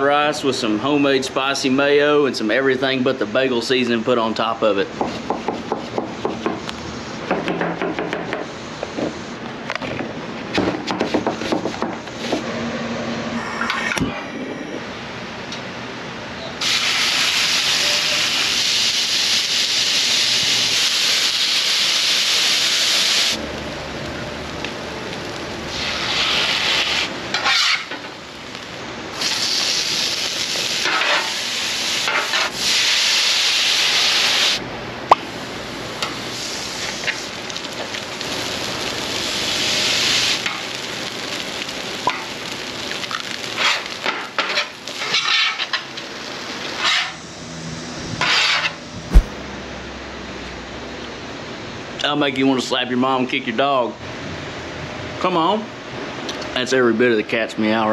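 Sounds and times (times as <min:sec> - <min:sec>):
meat sizzling on griddle: 0:16.6 - 0:34.6, 0:35.2 - 0:49.3
knife chopping on cutting board: 0:49.1 - 0:49.4.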